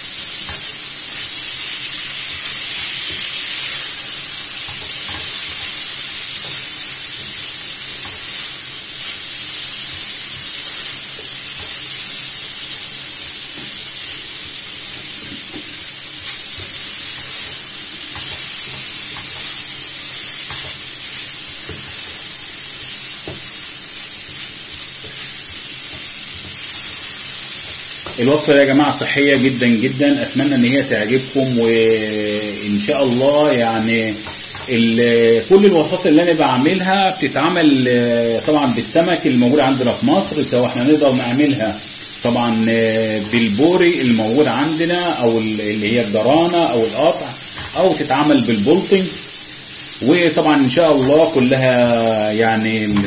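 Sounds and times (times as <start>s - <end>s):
vegetables sizzling in frying pan: 0.0s - 53.0s
spatula tapping and scraping pan: 4.5s - 7.0s, 15.2s - 20.9s, 21.6s - 22.2s, 24.7s - 27.0s.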